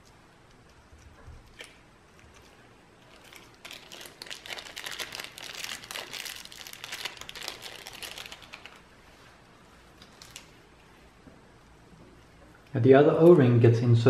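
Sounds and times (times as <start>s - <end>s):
plastic bag crinkling: 3.0s - 9.0s.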